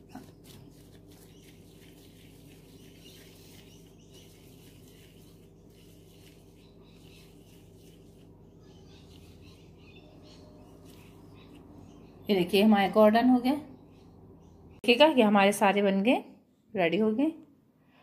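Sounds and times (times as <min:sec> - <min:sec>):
plastic gloves rustling: 0:00.0 - 0:11.9
steady low hum: 0:00.0 - 0:14.8.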